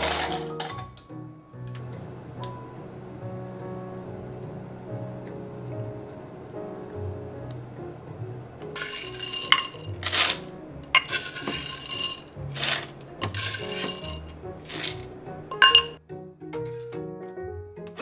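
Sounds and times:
soft background music: 0:00.0 - 0:18.0
coffee beans rattling into hopper: 0:08.8 - 0:15.9.

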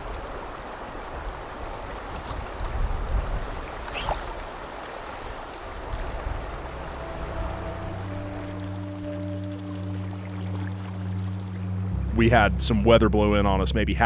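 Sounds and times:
wind buffeting microphone: 0:00.0 - 0:08.8
river water running over riffle: 0:00.0 - 0:12.5.

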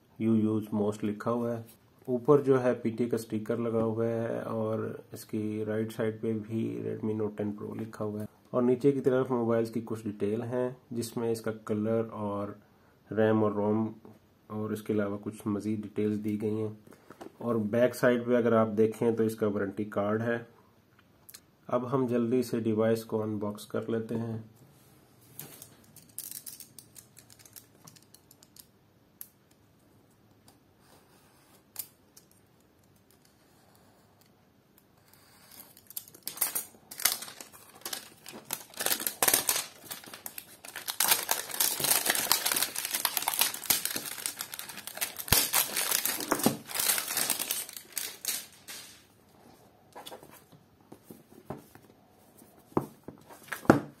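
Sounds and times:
plastic wrap crinkling: 0:35.7 - 0:49.1.

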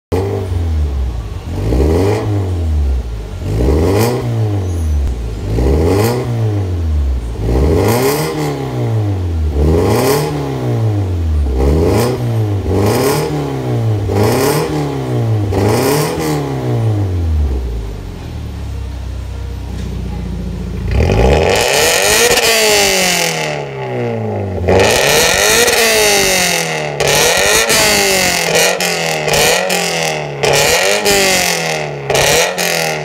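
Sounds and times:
car engine revving: 0:00.1 - 0:19.3, 0:19.9 - 0:33.0.

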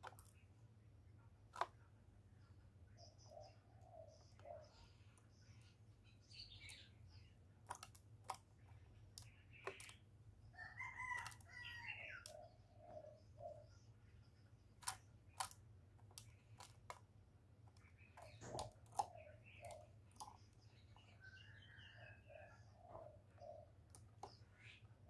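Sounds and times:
faint clicks and taps in cage: 0:00.0 - 0:00.4, 0:07.6 - 0:10.0, 0:14.8 - 0:21.2, 0:22.9 - 0:24.4
faint bird calls: 0:02.9 - 0:07.4, 0:17.8 - 0:25.0.

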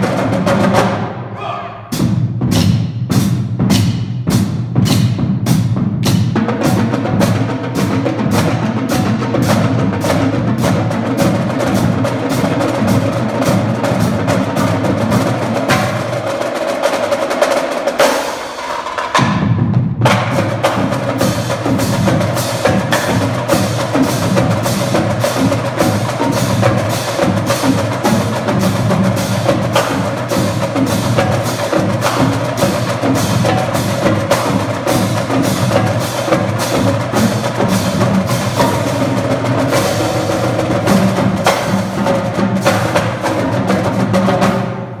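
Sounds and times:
drumline percussion cadence: 0:00.0 - 0:45.0
mallet keyboards: 0:21.2 - 0:44.6.

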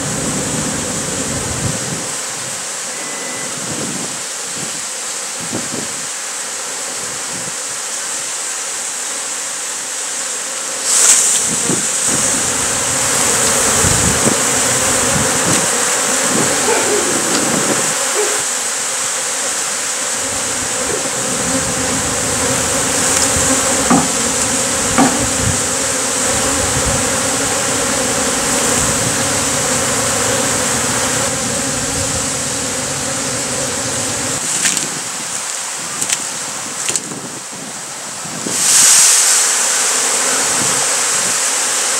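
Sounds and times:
bees buzzing: 0:09.1 - 0:37.0, 0:38.7 - 0:41.9
sharp knock: 0:23.8 - 0:24.4, 0:25.0 - 0:25.4.

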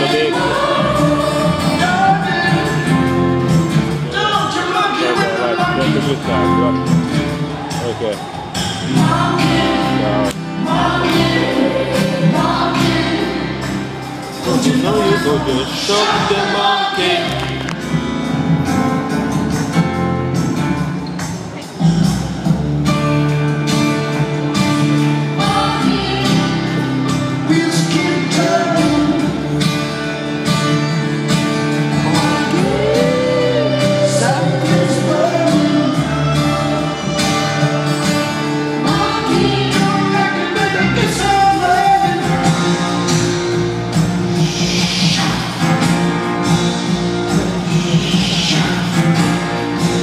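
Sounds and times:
person singing: 0:00.0 - 0:03.4, 0:04.0 - 0:06.9, 0:08.8 - 0:17.8, 0:25.4 - 0:29.6, 0:31.9 - 0:38.1, 0:38.7 - 0:43.0, 0:47.6 - 0:50.0
steady drum beat: 0:00.0 - 0:23.4, 0:31.8 - 0:50.0
rock band playing live: 0:00.0 - 0:50.0.

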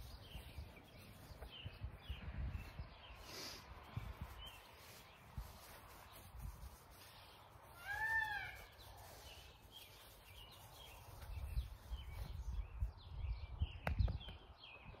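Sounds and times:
wind buffeting microphone: 0:00.0 - 0:03.2, 0:03.8 - 0:06.8, 0:10.8 - 0:15.0
small birds chirping: 0:00.0 - 0:15.0.

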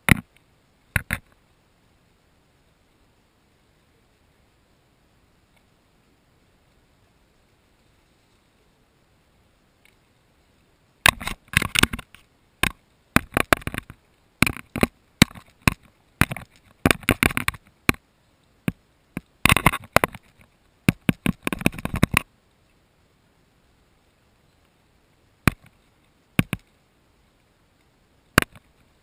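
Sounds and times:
beak pecking at plastic housing: 0:00.9 - 0:01.3, 0:11.1 - 0:18.0, 0:18.7 - 0:22.2, 0:25.5 - 0:25.8, 0:26.4 - 0:26.7, 0:28.4 - 0:28.7.

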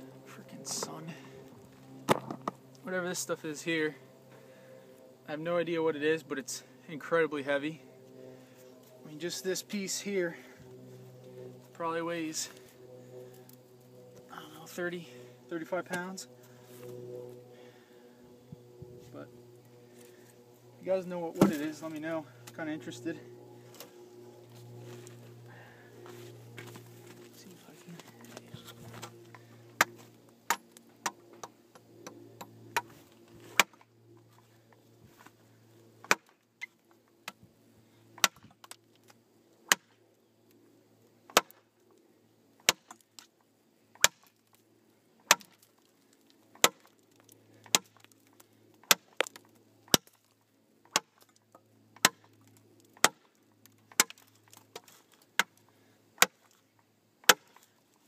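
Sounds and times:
knife chopping wood: 0:21.4 - 0:21.7, 0:33.5 - 0:33.8, 0:36.0 - 0:36.3, 0:38.2 - 0:38.6, 0:39.7 - 0:39.9, 0:41.3 - 0:41.6, 0:42.6 - 0:43.0, 0:43.9 - 0:44.3, 0:45.2 - 0:45.6, 0:46.5 - 0:46.9, 0:47.6 - 0:48.0, 0:48.8 - 0:50.2, 0:50.9 - 0:51.2, 0:52.0 - 0:52.3, 0:53.0 - 0:53.3, 0:53.9 - 0:55.6, 0:56.2 - 0:56.5, 0:57.2 - 0:57.6.

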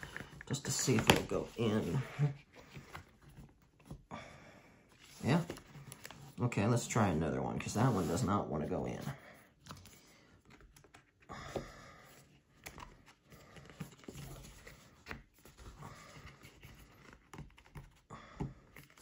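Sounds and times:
cardboard taps and scrapes: 0:00.0 - 0:02.0.

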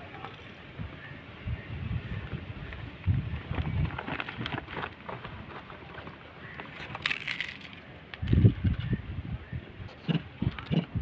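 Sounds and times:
wind buffeting microphone: 0:00.6 - 0:05.5, 0:08.2 - 0:11.0.

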